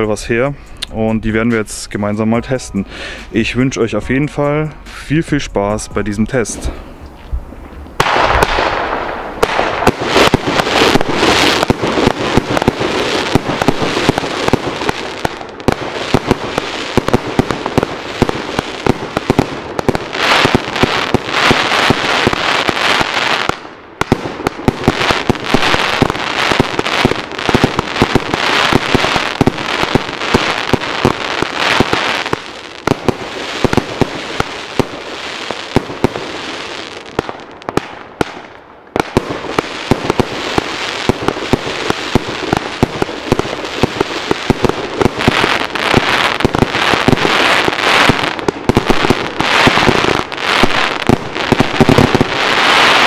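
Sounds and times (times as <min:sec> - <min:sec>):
crackling firework bursts: 0:07.6 - 0:53.0
firework launch bangs: 0:08.0 - 0:14.8.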